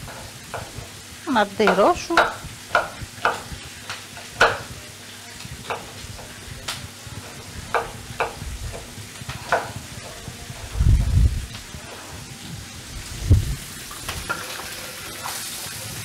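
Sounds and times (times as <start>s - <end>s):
food sizzling in a pan: 0.0s - 16.0s
knife chopping on wooden board: 1.7s - 3.5s, 4.4s - 4.7s, 7.7s - 10.2s.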